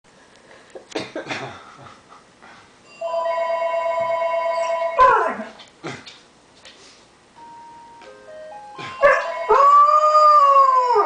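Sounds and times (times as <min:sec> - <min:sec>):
telephone two-tone ring: 0:02.9 - 0:05.0
dog howling: 0:09.0 - 0:11.0.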